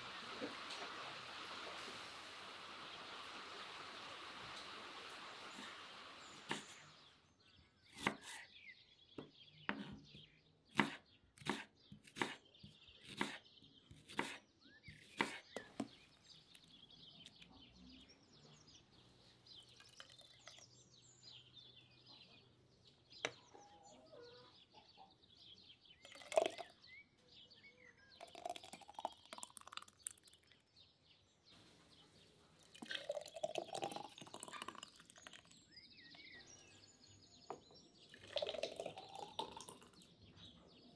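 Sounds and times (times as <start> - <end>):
birds chirping faintly: 0.0 - 40.9
knife chopping onion on board: 8.0 - 8.4, 10.7 - 14.4, 15.0 - 15.9
sauce pouring into glass jars: 19.6 - 20.9, 26.0 - 26.8, 28.1 - 30.7, 32.6 - 35.8, 38.0 - 40.2.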